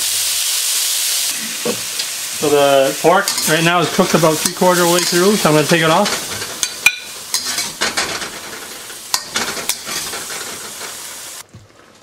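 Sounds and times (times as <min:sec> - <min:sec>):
meat sizzling in a wok: 0:00.0 - 0:11.4
metal clinking on wok: 0:03.2 - 0:10.9
metal spatula scraping wok: 0:03.2 - 0:11.4.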